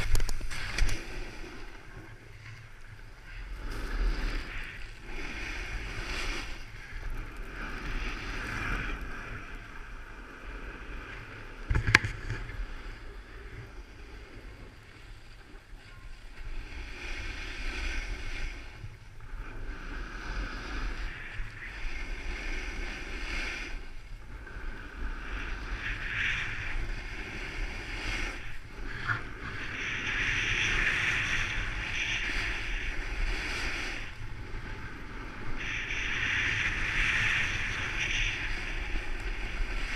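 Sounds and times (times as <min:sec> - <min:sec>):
wind rumbling on microphone: 0:00.0 - 0:39.9
hiss of sliding over snow: 0:03.2 - 0:11.3, 0:16.4 - 0:39.9.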